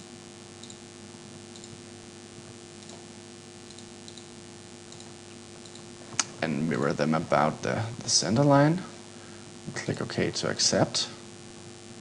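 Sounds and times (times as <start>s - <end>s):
low hum and hiss: 0.0s - 12.0s
computer mouse clicks: 0.6s - 0.8s, 1.5s - 1.8s, 2.8s - 3.0s, 3.7s - 4.3s, 4.9s - 5.9s.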